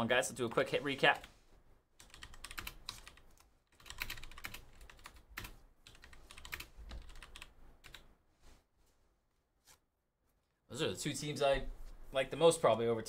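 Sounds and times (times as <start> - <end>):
typing on computer keyboard: 2.0 - 8.0.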